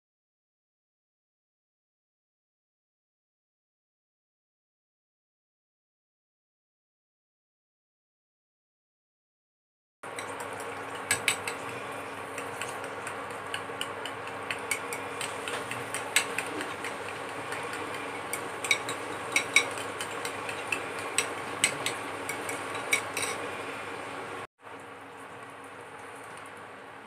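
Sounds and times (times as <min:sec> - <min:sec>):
fork clinking against glass bowl: 0:10.2 - 0:23.5.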